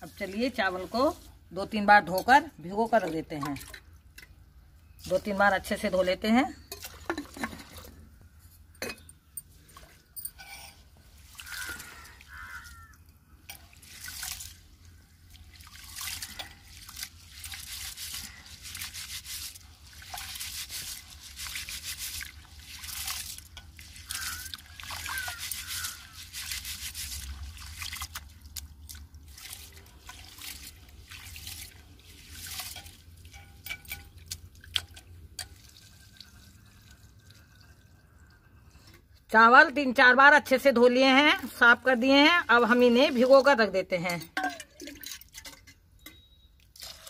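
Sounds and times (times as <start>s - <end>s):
water sloshing and splashing: 0.0s - 4.4s, 6.7s - 8.4s, 9.5s - 39.2s, 41.1s - 47.0s
water dripping: 11.2s - 17.8s, 19.6s - 39.3s.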